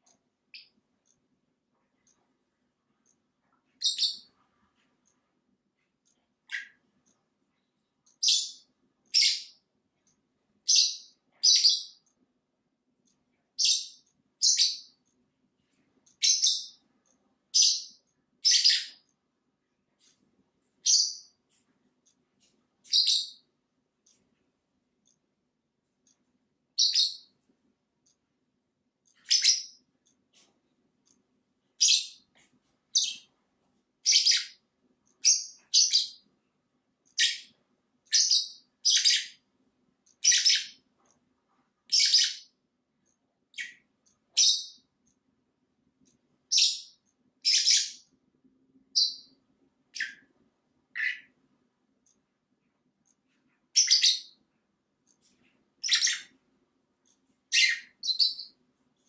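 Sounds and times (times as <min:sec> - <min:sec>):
lovebirds chirping: 0:03.0 - 0:04.4, 0:06.4 - 0:06.8, 0:08.1 - 0:09.6, 0:10.6 - 0:12.0, 0:13.6 - 0:15.0, 0:16.1 - 0:16.9, 0:17.5 - 0:19.1, 0:20.8 - 0:21.4, 0:22.4 - 0:23.5, 0:26.8 - 0:27.4, 0:29.1 - 0:30.5, 0:31.8 - 0:33.3, 0:34.0 - 0:36.3, 0:37.1 - 0:39.4, 0:40.1 - 0:40.8, 0:41.9 - 0:42.6, 0:43.5 - 0:44.9, 0:46.5 - 0:48.1, 0:48.9 - 0:50.3, 0:50.9 - 0:51.4, 0:53.7 - 0:54.4, 0:55.2 - 0:56.4, 0:57.5 - 0:58.6.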